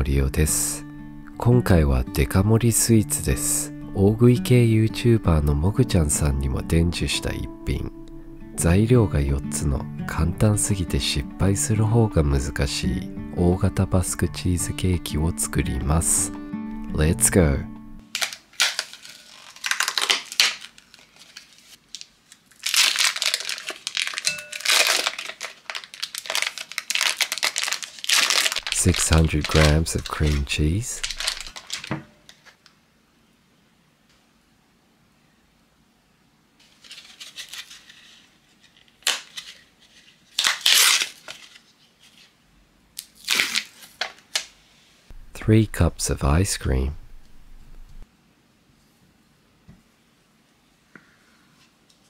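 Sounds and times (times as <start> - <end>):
foil wrapper crinkling: 18.0 - 32.6, 36.6 - 42.3, 43.0 - 44.6.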